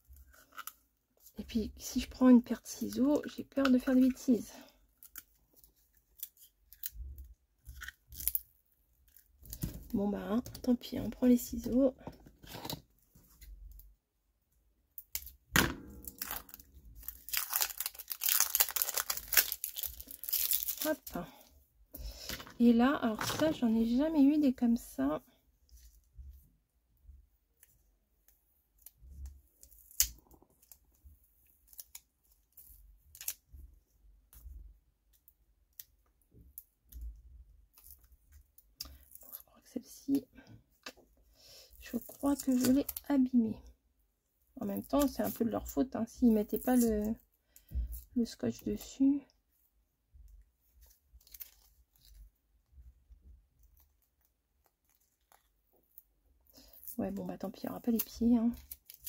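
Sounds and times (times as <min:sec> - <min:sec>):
tape being peeled: 0:00.0 - 0:01.3, 0:05.0 - 0:10.0, 0:14.9 - 0:21.1, 0:27.6 - 0:33.6, 0:37.7 - 0:39.4, 0:50.7 - 0:52.7, 0:53.5 - 0:57.0, 0:57.8 - 0:59.0.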